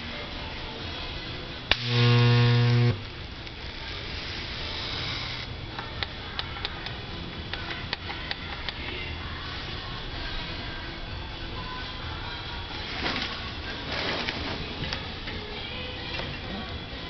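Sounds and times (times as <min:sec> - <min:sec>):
loud electrical buzz: 0:01.7 - 0:05.7.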